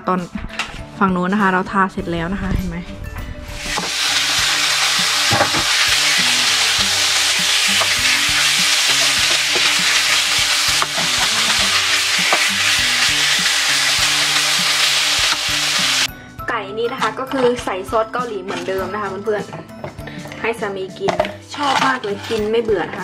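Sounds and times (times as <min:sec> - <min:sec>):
spatula scraping a pan: 0:03.6 - 0:15.4, 0:21.6 - 0:22.5
chicken sizzling in oil: 0:03.6 - 0:16.1.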